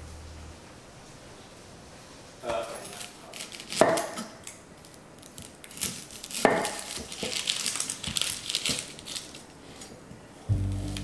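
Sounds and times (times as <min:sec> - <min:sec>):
dry onion skin crackling: 0:03.0 - 0:09.9.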